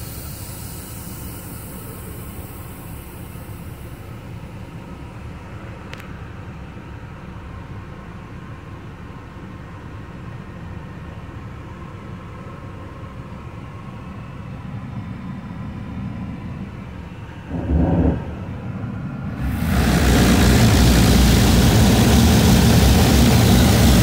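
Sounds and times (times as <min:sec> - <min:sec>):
diesel engine idling: 0:00.0 - 0:24.0
loud engine burst: 0:17.5 - 0:24.0
truck wash equipment rushing: 0:17.7 - 0:24.0.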